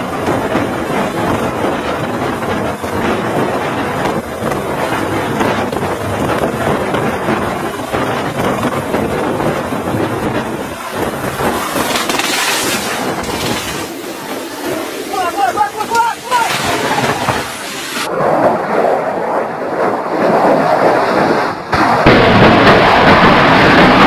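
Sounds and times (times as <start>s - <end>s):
helicopter rotor and turbine: 0.0s - 24.0s
wind buffeting microphone: 0.0s - 24.0s
harsh hissing burst: 10.5s - 18.1s.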